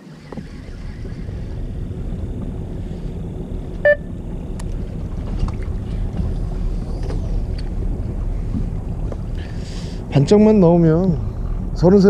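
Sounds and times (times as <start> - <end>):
boat engine rumbling: 0.0 - 12.0
short beep: 3.8 - 4.1.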